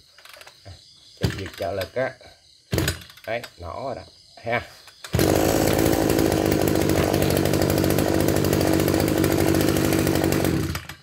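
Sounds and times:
brush cutter engine running: 5.1s - 11.0s.

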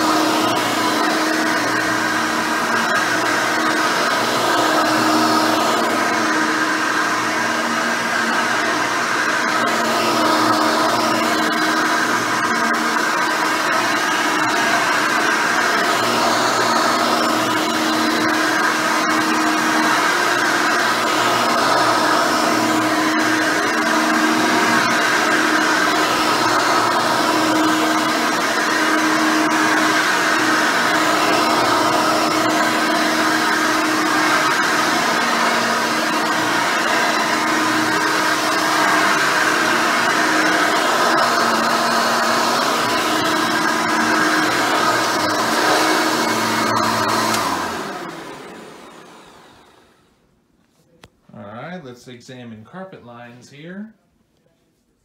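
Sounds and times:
vacuum cleaner running on carpet: 0.0s - 50.1s.

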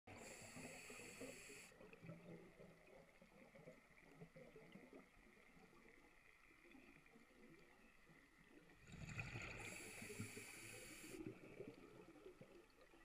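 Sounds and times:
muffled underwater crackle: 0.1s - 13.0s.

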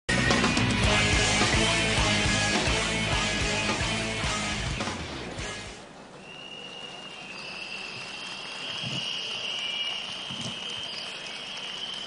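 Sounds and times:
rock music: 0.1s - 5.8s
crowd blowing whistles: 6.1s - 12.0s.

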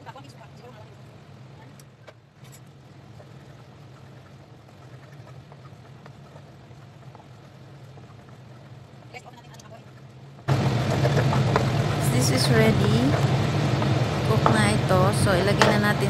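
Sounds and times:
low hum: 0.7s - 16.0s
sauce bubbling in a frying pan: 2.8s - 12.0s, 13.1s - 14.3s.

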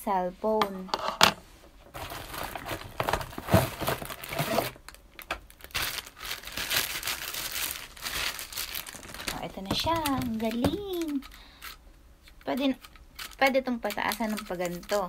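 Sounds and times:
plastic wrapping crinkling: 1.9s - 15.0s.

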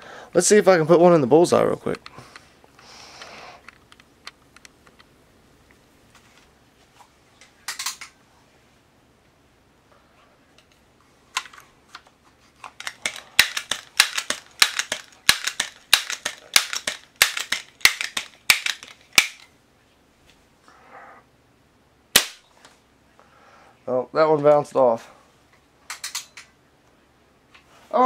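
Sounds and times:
pellet pistol pumping clacks: 12.7s - 19.5s
pistol shot: 22.1s - 22.4s.

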